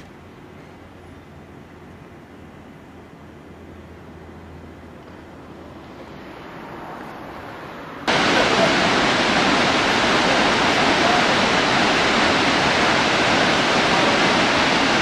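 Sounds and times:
waterfall rushing: 6.1 - 15.0.

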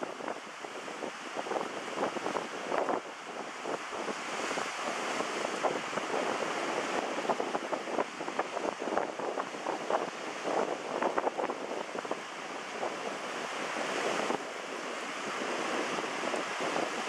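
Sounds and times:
sea waves washing: 0.0 - 17.0
wind rushing over microphone: 0.0 - 17.0.

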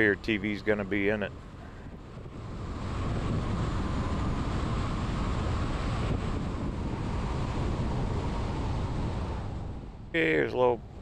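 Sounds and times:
van wind and road noise: 0.0 - 11.0.

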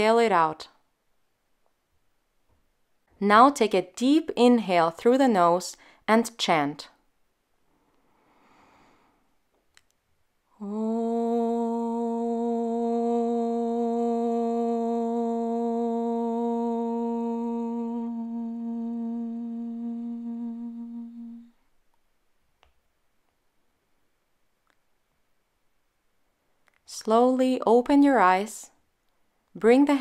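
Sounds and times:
soft inhale through nose: 7.7 - 9.4
woman chanting om: 10.5 - 21.6.

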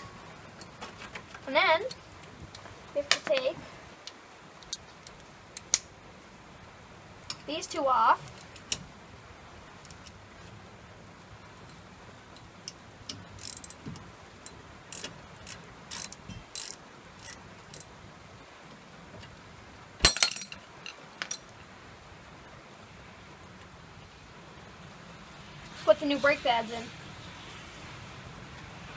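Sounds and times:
ratchet wrench clicking: 13.1 - 13.8, 14.4 - 17.8
sharp metallic clanks: 20.0 - 21.6.

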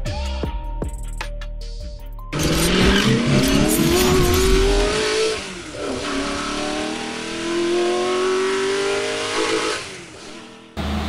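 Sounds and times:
car engine accelerating: 2.4 - 11.0.

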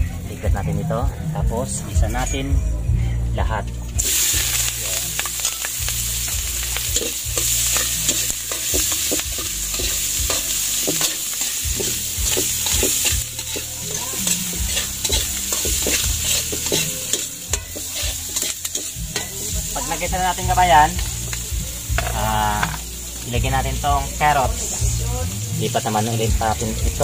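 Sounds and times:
vegetables sizzling in oil: 4.0 - 27.0
spatula scraping and knocking pan: 5.2 - 19.4.

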